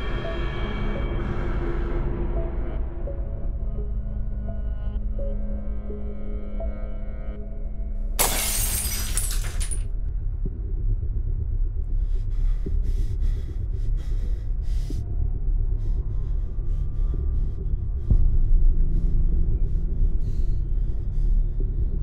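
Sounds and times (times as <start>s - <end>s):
shattering crash: 8.2s - 9.8s
steady low drone: 8.8s - 22.0s.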